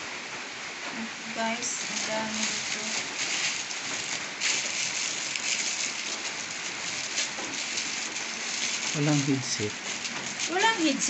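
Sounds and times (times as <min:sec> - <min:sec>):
steady hiss: 0:00.0 - 0:11.0
plastic packaging rustling: 0:01.4 - 0:11.0.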